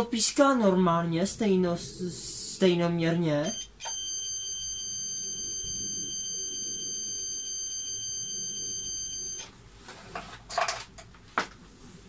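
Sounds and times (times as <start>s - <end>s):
multimeter continuity beep: 3.4s - 9.5s.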